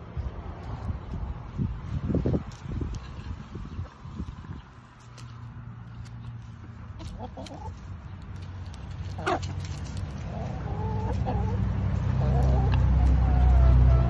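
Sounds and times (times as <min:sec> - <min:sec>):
hens clucking: 0:05.9 - 0:14.0.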